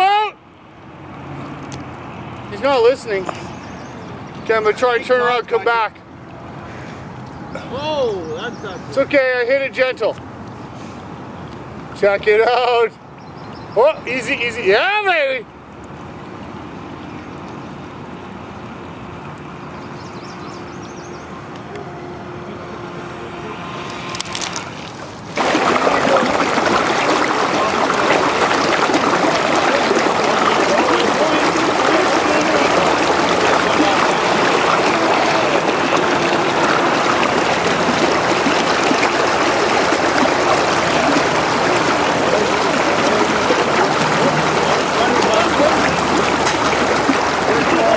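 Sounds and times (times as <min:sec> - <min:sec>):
faint river sound: 0:00.0 - 0:47.9
river rapids rushing: 0:23.6 - 0:47.9.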